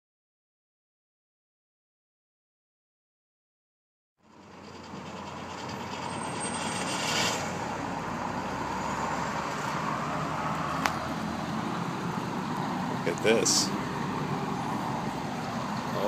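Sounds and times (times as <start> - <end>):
road traffic: 4.2 - 16.0.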